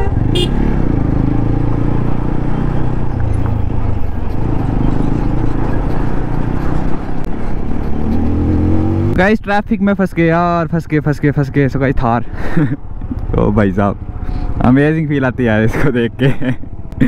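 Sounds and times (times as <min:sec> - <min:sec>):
motorcycle engine running: 0:00.0 - 0:08.4, 0:12.6 - 0:17.0.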